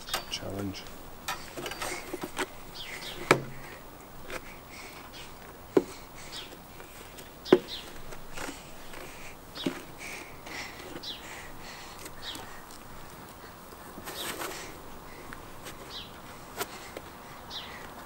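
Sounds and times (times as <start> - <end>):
swing set knocking: 0.0 - 6.6, 7.3 - 11.2.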